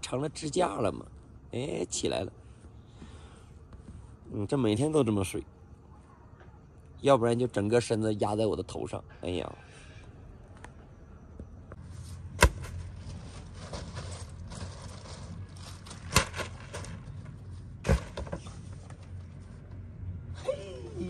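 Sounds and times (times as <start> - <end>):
rustling of tent fabric: 11.8 - 17.7
plastic bags rustling: 12.7 - 17.6.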